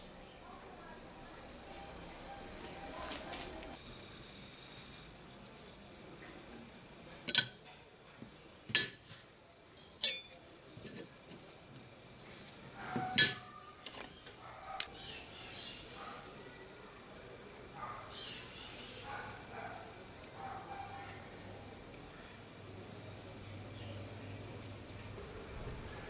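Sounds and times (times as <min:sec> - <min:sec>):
knife clinking on steel: 0:10.0 - 0:10.4.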